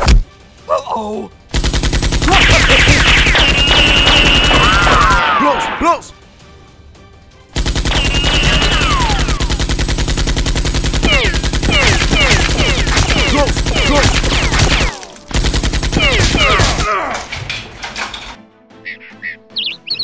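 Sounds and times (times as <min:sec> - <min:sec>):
automatic gunfire: 0:01.5 - 0:05.3, 0:07.6 - 0:16.8.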